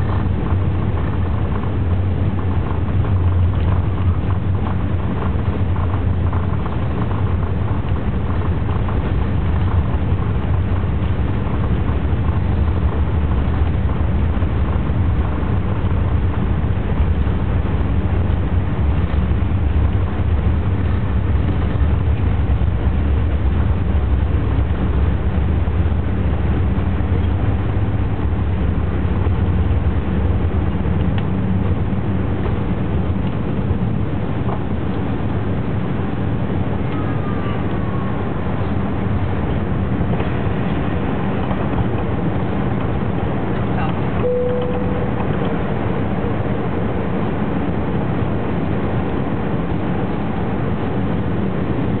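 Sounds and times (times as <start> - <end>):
deep rumble of jet engines: 0.0 - 52.0
clear tone: 44.2 - 45.6.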